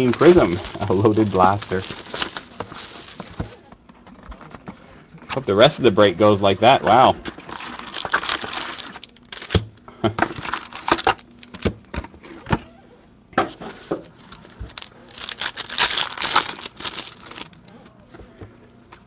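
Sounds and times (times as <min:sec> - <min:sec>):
foil pack tearing: 0:00.0 - 0:03.6, 0:07.3 - 0:11.7, 0:13.7 - 0:17.7
foil packs crinkling: 0:00.0 - 0:03.6, 0:06.6 - 0:11.8, 0:13.6 - 0:17.8.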